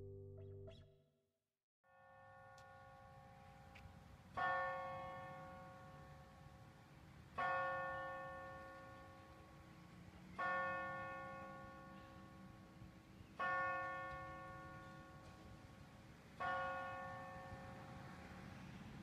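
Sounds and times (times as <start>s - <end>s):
church bell tolling: 4.4s - 6.6s, 7.4s - 9.6s, 10.4s - 12.8s, 13.4s - 15.7s, 16.4s - 18.6s.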